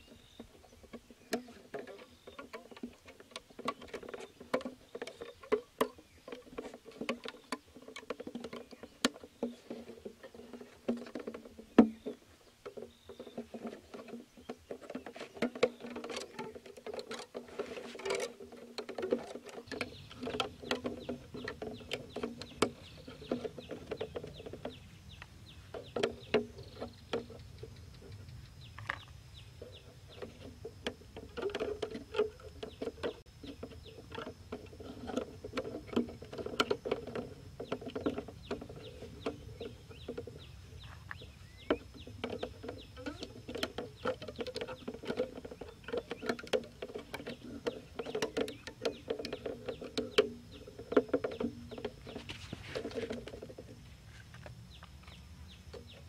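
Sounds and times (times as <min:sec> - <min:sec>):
hands handling plastic jar and sticks: 0:28.8 - 0:55.9.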